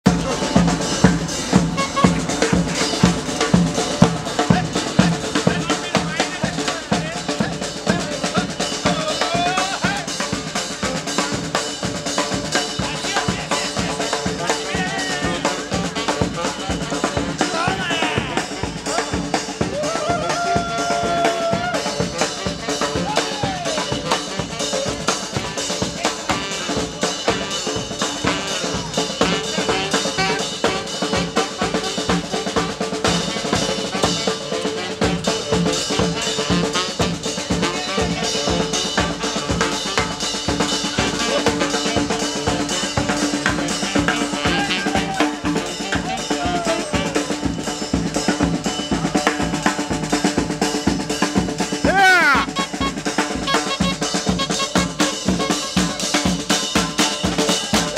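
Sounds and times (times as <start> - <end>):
bass drum: 0.0 - 57.9
snare drum: 0.0 - 57.9
saxophone playing tune: 0.2 - 5.3, 26.3 - 47.5, 51.9 - 56.2.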